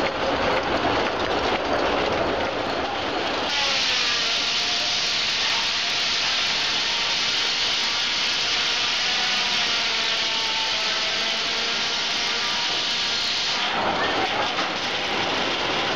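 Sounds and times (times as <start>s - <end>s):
saw blade cutting through log: 3.4s - 15.9s.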